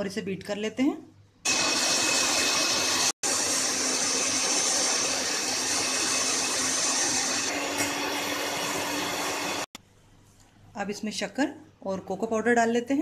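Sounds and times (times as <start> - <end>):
electric hand mixer whipping cream: 1.5 - 9.8.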